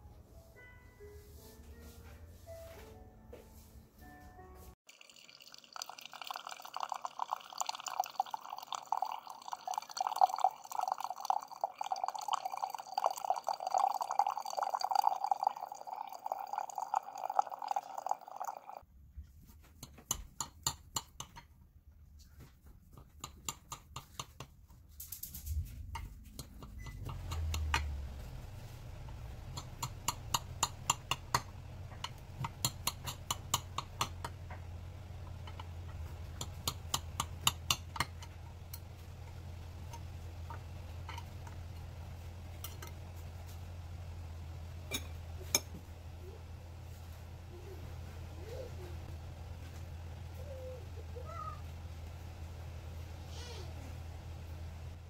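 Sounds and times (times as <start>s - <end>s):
coffee pouring into a mug: 4.9s - 18.8s.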